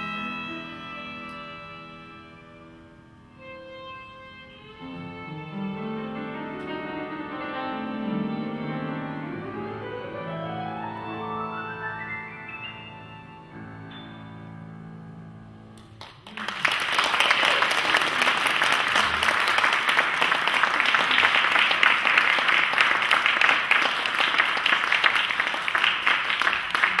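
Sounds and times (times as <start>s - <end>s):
piano and violin chord: 0.0s - 15.1s
audience applause: 16.0s - 27.0s.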